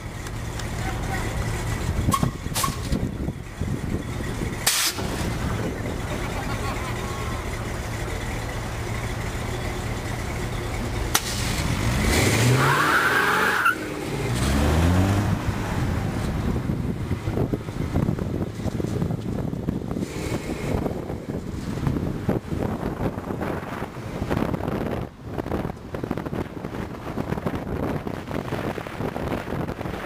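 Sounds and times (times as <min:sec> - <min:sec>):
road noise: 0:00.0 - 0:30.0
truck engine idling and revving: 0:00.0 - 0:30.0
wind on microphone: 0:15.1 - 0:30.0.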